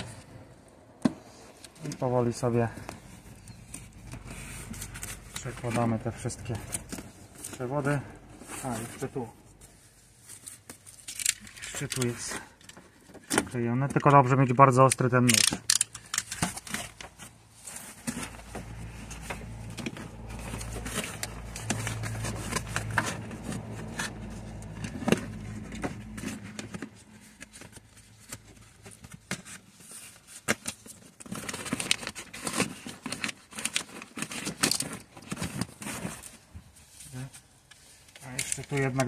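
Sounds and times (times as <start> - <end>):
membrane crackling and peeling: 14.0 - 39.0.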